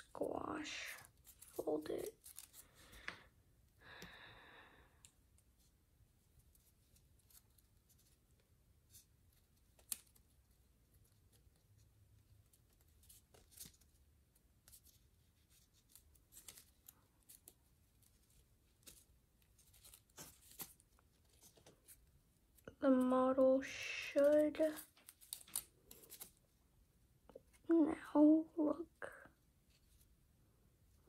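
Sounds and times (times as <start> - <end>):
paper crinkling: 0.8 - 3.2, 8.9 - 22.8, 23.7 - 26.5.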